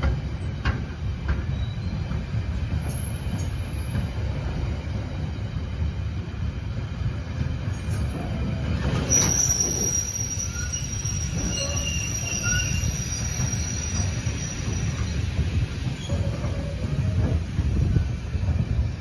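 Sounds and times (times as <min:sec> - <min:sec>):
train rolling with low rumble: 0:00.0 - 0:19.0
train wheels squealing: 0:01.3 - 0:04.2, 0:07.8 - 0:18.1.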